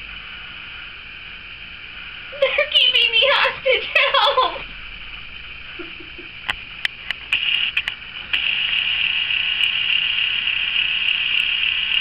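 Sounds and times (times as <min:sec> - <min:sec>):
small clicks: 0:06.5 - 0:08.8.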